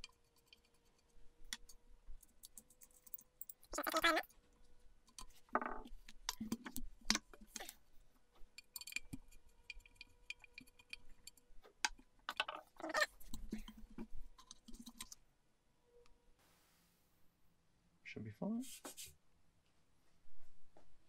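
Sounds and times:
parts clicking and scraping: 5.0 - 15.2.

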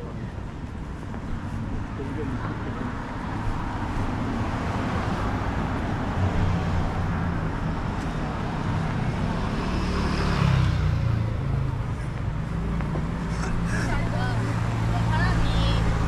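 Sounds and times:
low road rumble: 0.0 - 16.0
car passing by: 3.6 - 11.8.

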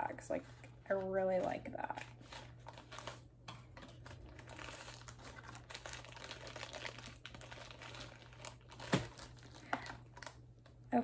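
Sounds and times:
plastic bag crinkling: 0.5 - 11.0.

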